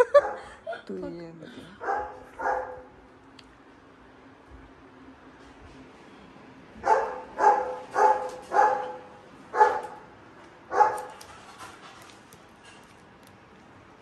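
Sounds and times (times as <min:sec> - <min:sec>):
dog barking: 0:00.1 - 0:00.4, 0:01.8 - 0:02.9, 0:06.8 - 0:10.0, 0:10.7 - 0:11.2.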